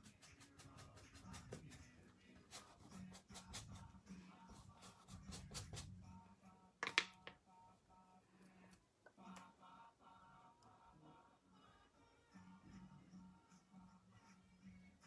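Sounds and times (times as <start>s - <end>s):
paintbrush strokes on canvas: 0.0s - 5.9s
faint music: 0.0s - 15.0s.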